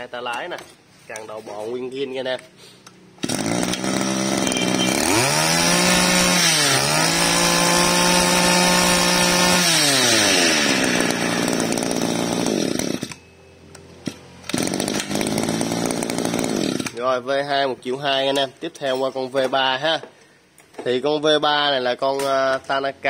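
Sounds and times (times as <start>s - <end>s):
grass trimmer engine revving: 3.2s - 13.2s, 14.0s - 17.0s.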